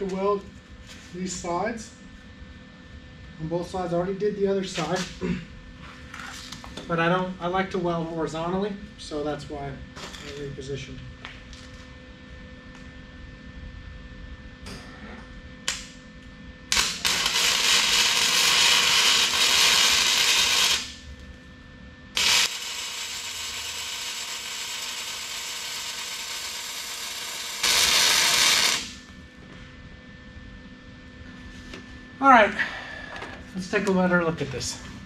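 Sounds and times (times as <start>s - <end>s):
arc welding sizzling hiss: 16.7s - 21.1s, 22.2s - 29.1s.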